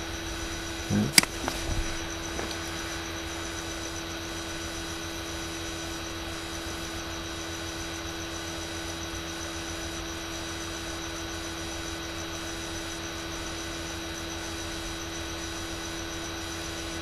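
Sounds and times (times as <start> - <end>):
microphone hiss: 0.8 - 4.6
steady mid-pitched tone: 0.9 - 1.6.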